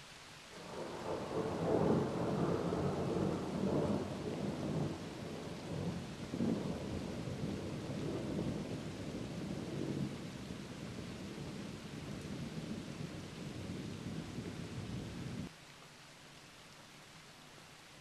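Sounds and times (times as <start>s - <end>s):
rolling thunder rumble: 0.6s - 15.5s.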